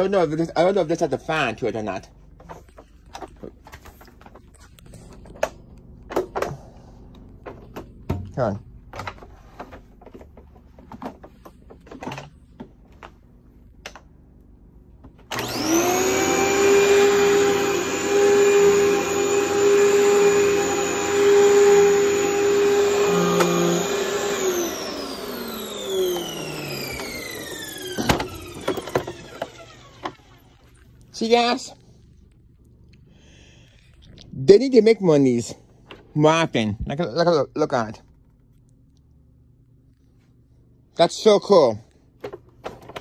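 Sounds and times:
vacuum cleaner motor whine: 0:15.0 - 0:31.6.

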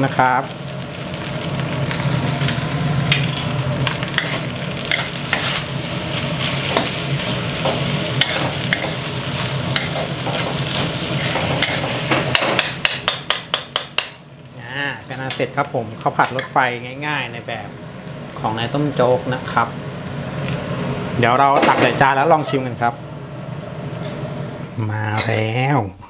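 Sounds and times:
rice sizzling in wok: 0:00.0 - 0:25.5
spatula scraping wok: 0:01.2 - 0:14.1.

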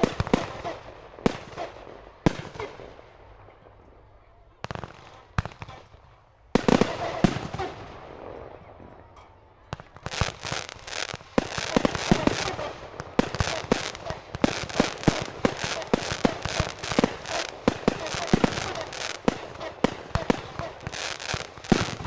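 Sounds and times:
firework bangs: 0:00.0 - 0:02.9, 0:06.6 - 0:08.9, 0:09.7 - 0:22.0
steady firework crackle: 0:00.0 - 0:03.0, 0:04.7 - 0:08.7, 0:09.7 - 0:22.0
rapid firework cracks and pops: 0:04.6 - 0:06.0, 0:06.6 - 0:07.9, 0:09.7 - 0:22.0.

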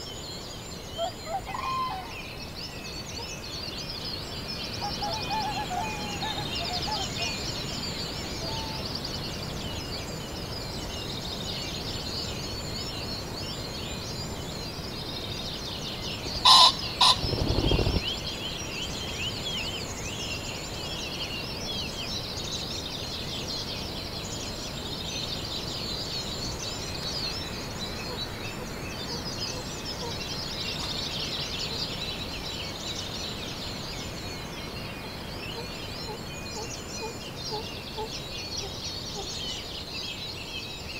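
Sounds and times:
songbirds chirping: 0:00.0 - 0:40.9
pheasant crowing: 0:01.2 - 0:02.1, 0:16.4 - 0:18.0
whirr of wing beats: 0:16.5 - 0:18.3.

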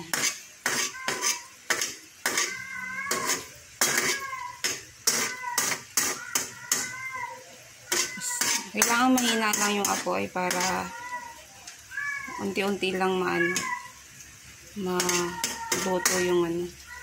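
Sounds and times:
spatula scraping a steel wok: 0:00.0 - 0:07.0, 0:07.9 - 0:11.0, 0:14.9 - 0:16.4.

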